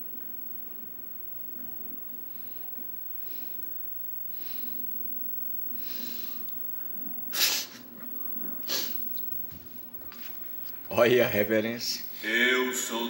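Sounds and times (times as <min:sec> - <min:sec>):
person breathing softly: 0:02.4 - 0:04.9, 0:05.8 - 0:06.5
loud short sniffs: 0:07.3 - 0:07.8, 0:08.6 - 0:09.0.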